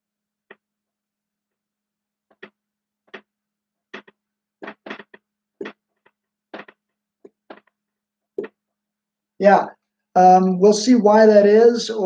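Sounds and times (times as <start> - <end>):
marker writing on a whiteboard: 2.3 - 9.0.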